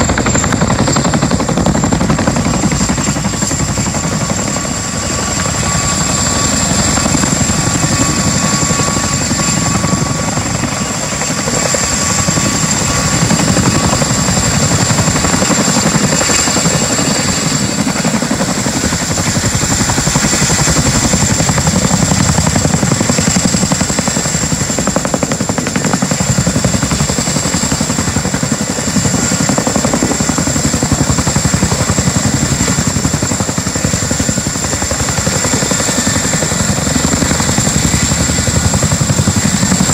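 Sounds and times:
helicopter rotor blades beating: 0:00.0 - 0:39.9.

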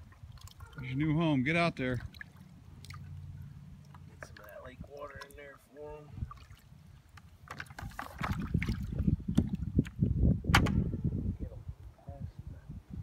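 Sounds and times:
water splashes: 0:00.0 - 0:10.0
water sloshing and gurgling: 0:00.0 - 0:10.3.

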